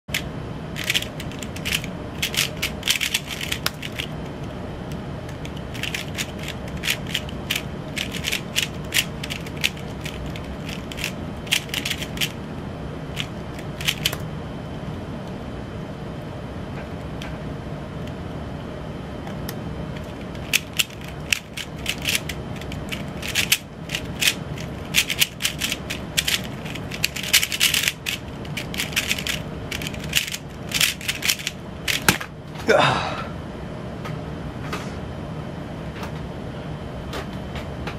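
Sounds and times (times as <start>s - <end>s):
low hum: 0.1s - 37.1s
puzzle cube layers clicking: 0.8s - 4.1s, 5.4s - 12.4s, 13.2s - 14.2s, 20.4s - 32.2s.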